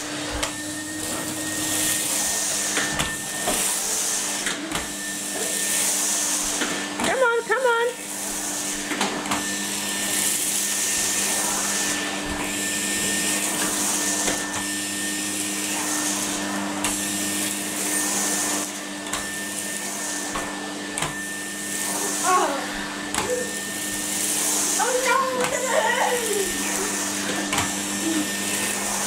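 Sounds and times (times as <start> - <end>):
vacuum cleaner motor hum: 0.0 - 29.0
vacuum suction hiss on carpet: 0.0 - 29.0.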